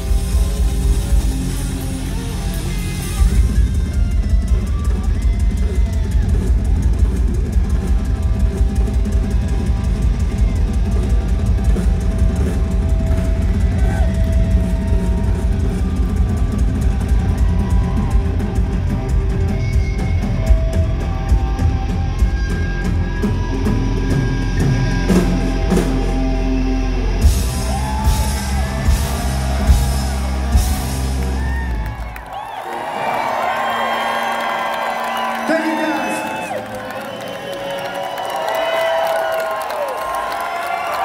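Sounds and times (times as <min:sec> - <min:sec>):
distorted electric guitar: 0:00.0 - 0:31.8
bass guitar: 0:00.0 - 0:32.2
drum kit: 0:00.0 - 0:32.2.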